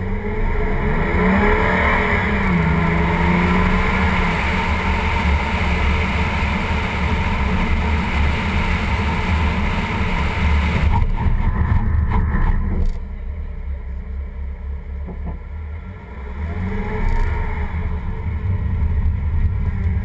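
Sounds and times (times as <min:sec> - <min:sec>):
tyre road noise: 0:00.0 - 0:20.0.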